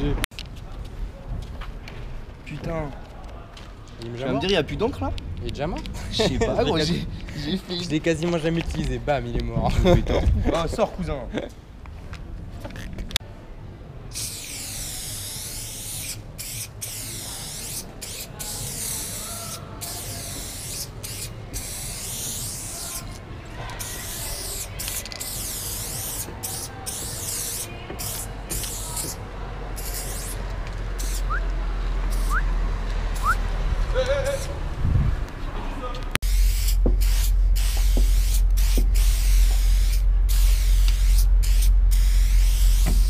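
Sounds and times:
spray paint can hissing: 14.1s - 29.2s, 29.8s - 30.4s, 31.0s - 31.4s, 32.1s - 32.4s, 33.2s - 33.4s, 36.2s - 43.0s
low rumble: 36.8s - 43.0s.

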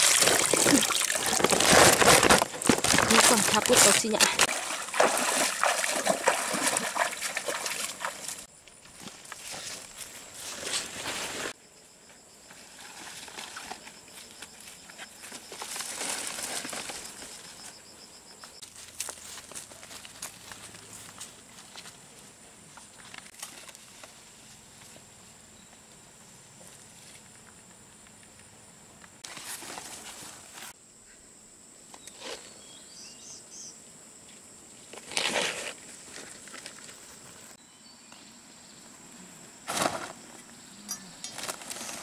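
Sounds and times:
leafy undergrowth rustling: 0.0s - 11.6s, 12.6s - 17.8s, 39.6s - 42.0s
high steady insect buzz: 11.5s - 12.8s, 30.7s - 34.9s
footsteps through grass: 18.6s - 24.9s.

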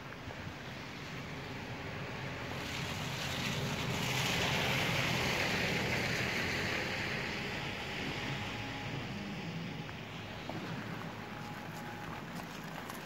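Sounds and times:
low road rumble: 0.0s - 13.0s
tyre hiss on wet road: 2.2s - 8.3s.

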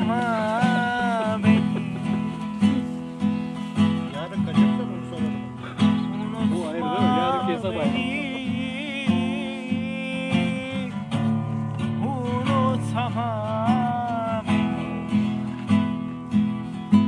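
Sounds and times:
strummed acoustic guitar: 0.0s - 17.0s
person singing with vibrato: 6.4s - 11.3s.

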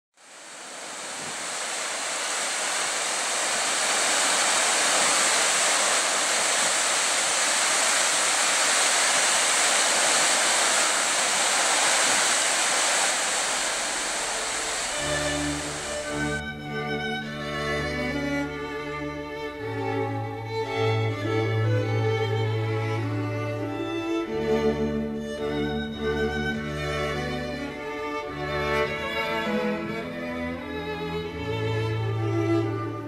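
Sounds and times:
water rushing over a weir: 0.2s - 16.4s.

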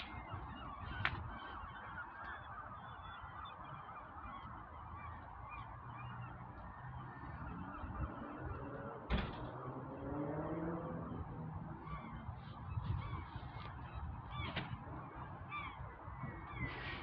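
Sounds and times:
small birds chirping: 11.1s - 17.0s.

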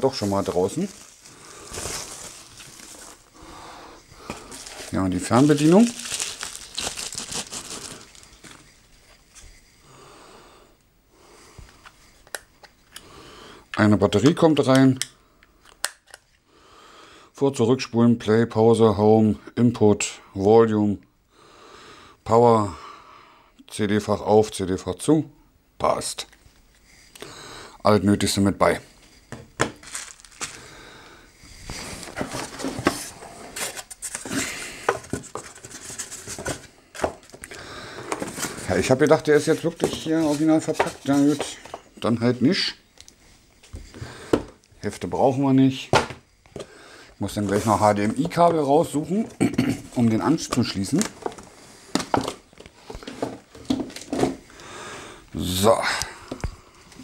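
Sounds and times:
plastic wrapping rustling: 0.0s - 3.6s, 4.2s - 9.4s, 29.0s - 30.8s, 31.6s - 42.0s, 49.9s - 54.6s.

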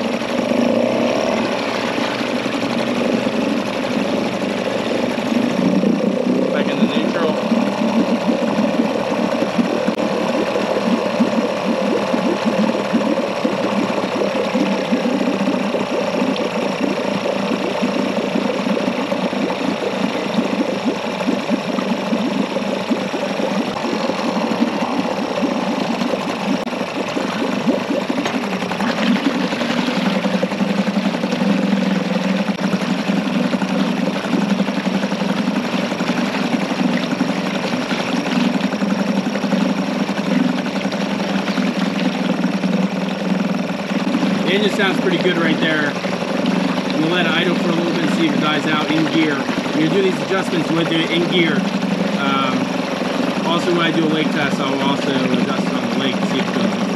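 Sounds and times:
outboard motor idling: 0.0s - 56.9s
propeller churning water: 0.0s - 56.9s.

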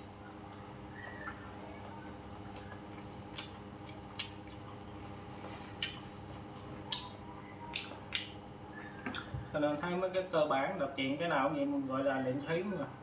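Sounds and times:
chewing: 0.0s - 8.3s
faint background hum: 0.0s - 13.0s
chopsticks and spoon clicking dishes: 7.7s - 8.4s.

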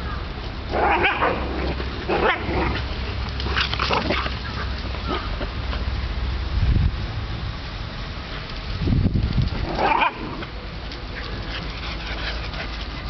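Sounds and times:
dog barking: 0.8s - 1.5s.

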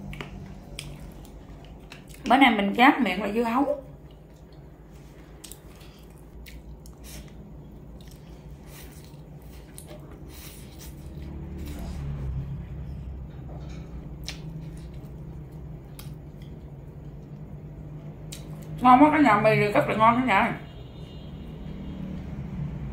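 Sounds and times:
chewing and wet mouth sounds: 0.0s - 2.6s, 3.8s - 12.4s, 13.6s - 18.8s.

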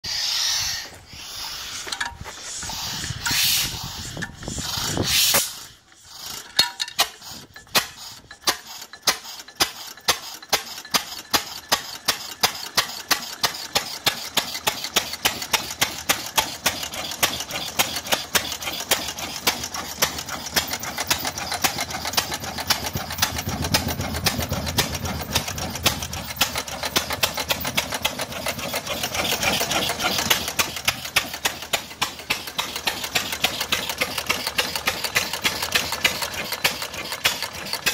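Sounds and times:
rapid clicking: 1.8s - 37.9s.

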